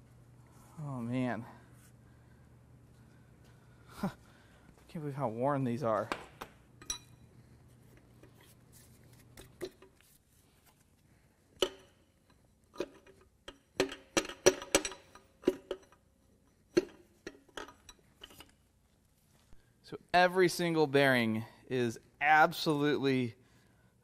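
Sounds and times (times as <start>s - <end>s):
metal engine parts clinking: 11.6s - 16.1s, 16.8s - 18.5s.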